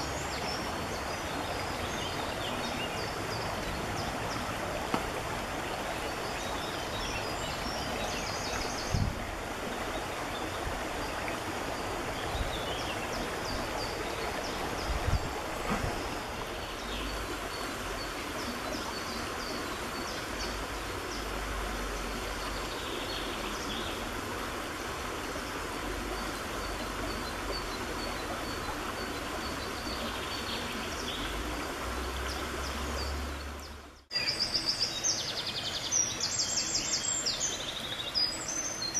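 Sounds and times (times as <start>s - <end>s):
stream rushing over stones: 0.0s - 38.9s.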